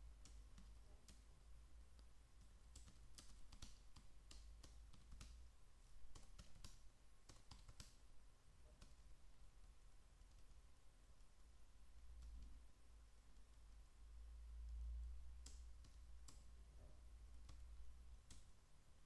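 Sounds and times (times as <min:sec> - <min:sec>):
low steady hum: 0:00.0 - 0:19.0
computer keyboard typing: 0:00.2 - 0:01.4, 0:02.0 - 0:05.4, 0:06.1 - 0:08.0, 0:15.4 - 0:16.5.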